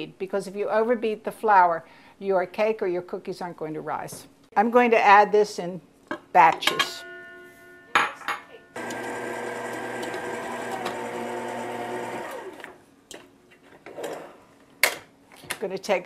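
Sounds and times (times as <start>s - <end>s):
stand mixer running: 8.8s - 12.8s.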